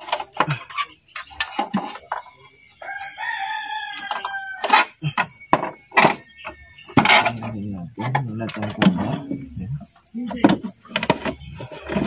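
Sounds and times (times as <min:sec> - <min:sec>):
rooster crowing: 0:02.8 - 0:05.0.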